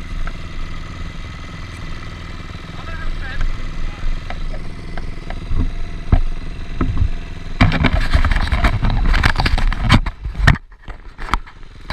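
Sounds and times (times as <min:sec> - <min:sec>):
dirt bike engines idling: 0:00.0 - 0:11.9
loud crackling knocking noise: 0:04.2 - 0:10.6.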